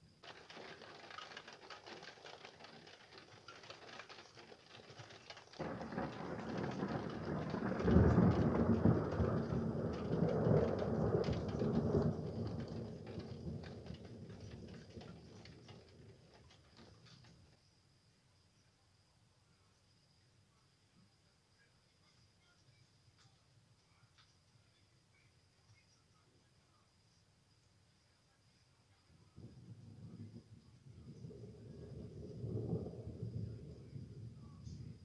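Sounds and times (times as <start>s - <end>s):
rain: 0.0s - 17.6s, 29.4s - 35.0s
thunder rumble: 0.2s - 17.5s, 29.3s - 35.0s.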